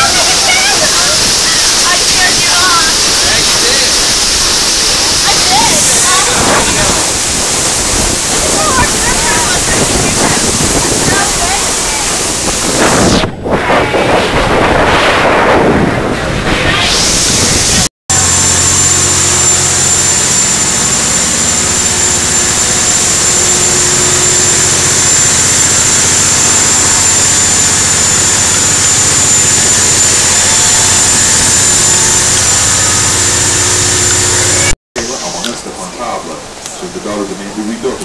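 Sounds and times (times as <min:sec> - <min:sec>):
wind noise on microphone: 0:00.0 - 0:34.8
high-pitched whine: 0:00.0 - 0:35.8
machinery hum: 0:00.0 - 0:37.6.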